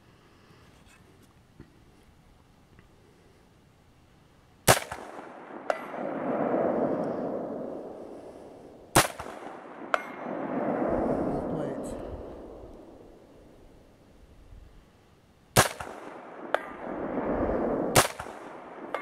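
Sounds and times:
rifle shots: 4.6 - 13.3, 15.5 - 19.0
rolling echo: 4.7 - 14.1, 15.6 - 19.0
bullet pinging steel plate: 5.7 - 6.0, 9.2 - 10.2, 18.2 - 19.0.

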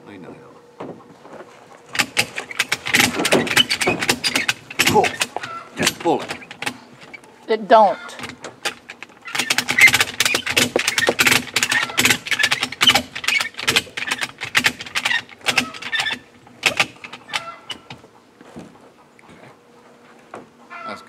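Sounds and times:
webbing rasping: 1.8 - 18.1
ratchet strap clicking: 1.9 - 7.2, 8.2 - 18.0.

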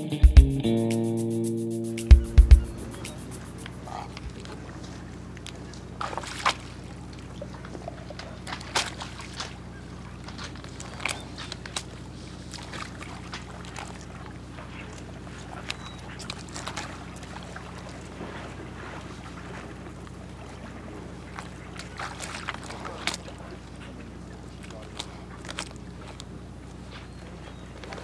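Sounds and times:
steady low hum: 0.0 - 5.3
water sloshing and lapping: 3.8 - 28.0.

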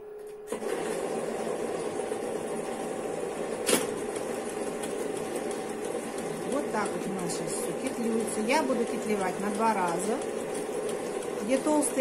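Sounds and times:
knitting machine running: 0.5 - 12.0.

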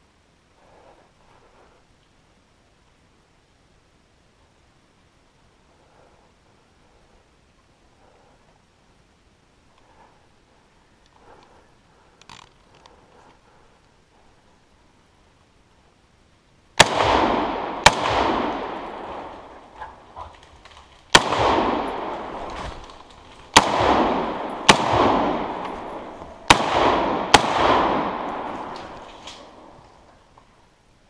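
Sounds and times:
echo rolling through woods: 0.0 - 31.0
rifle shots: 16.8 - 29.9.

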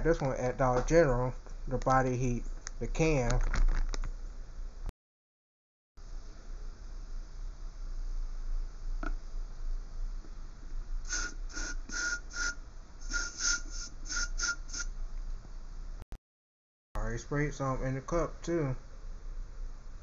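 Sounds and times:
aerosol spray hissing: 11.1 - 14.9.

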